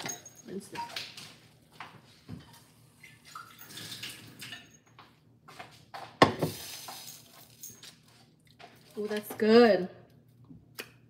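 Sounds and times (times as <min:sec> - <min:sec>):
tap water running: 0:02.3 - 0:04.7.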